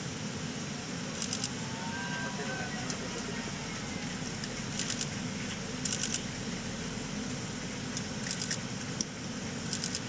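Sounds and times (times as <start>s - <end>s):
cockpit airflow noise: 0.0s - 10.0s
camera shutter bursts: 1.1s - 1.6s, 4.7s - 5.1s, 5.8s - 6.3s, 8.2s - 8.7s, 9.6s - 10.0s.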